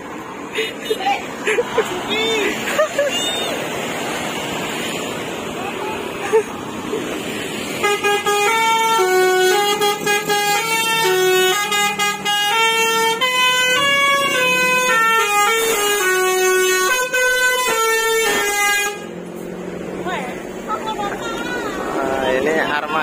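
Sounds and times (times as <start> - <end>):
musical air horn tune: 7.8 - 19.1.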